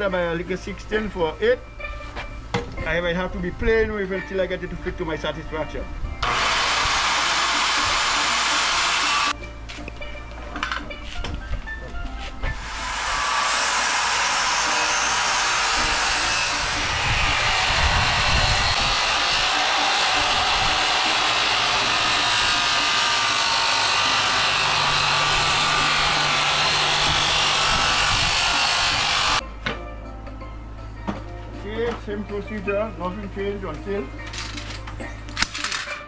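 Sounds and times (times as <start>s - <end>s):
circular saw cutting wood: 6.2s - 9.4s, 12.4s - 29.4s.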